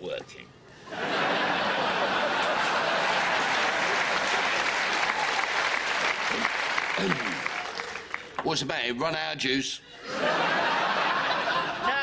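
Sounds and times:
audience applause: 1.4s - 8.4s.

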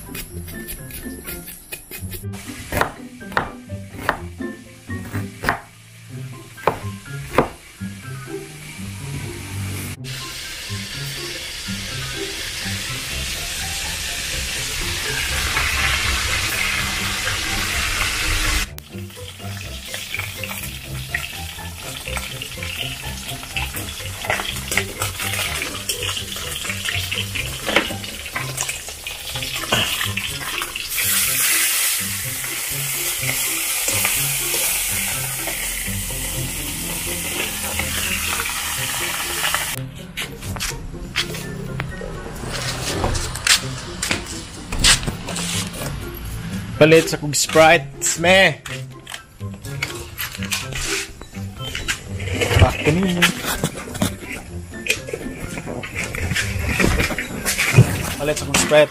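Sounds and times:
fish sizzling in hot oil: 10.0s - 39.8s.

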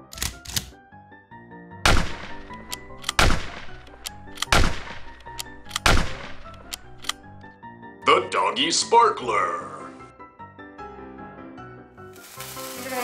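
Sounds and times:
background music: 0.0s - 13.0s
gunshots with ringing tail: 1.8s - 6.6s.

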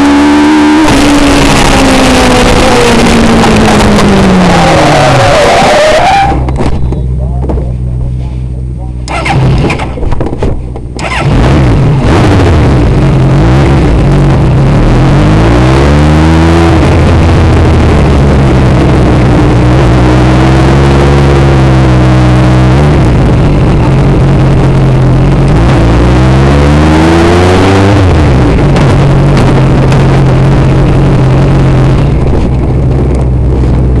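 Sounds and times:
race car engine revving: 0.0s - 8.4s, 9.0s - 34.0s.

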